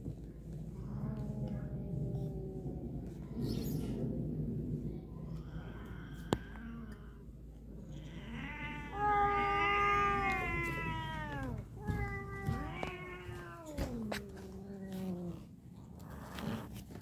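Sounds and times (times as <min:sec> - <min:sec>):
cat yowling: 0:08.0 - 0:14.4.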